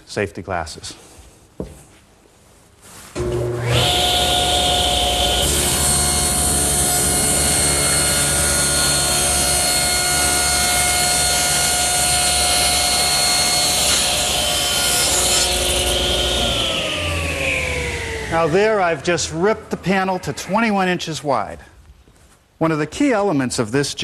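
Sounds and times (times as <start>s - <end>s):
saw cutting through plywood: 3.2s - 21.0s
table saw blade whine: 3.2s - 21.1s.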